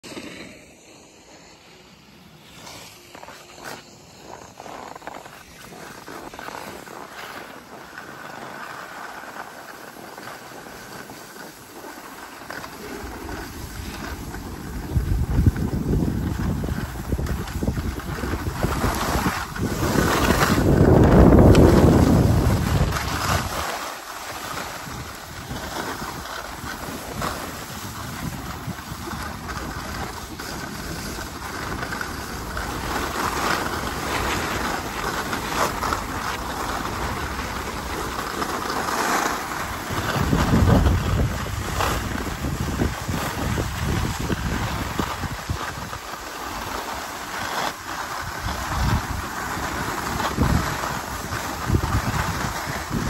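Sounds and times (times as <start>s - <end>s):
skis scraping over snow: 0.0s - 53.0s
wind rushing over microphone: 12.4s - 53.0s.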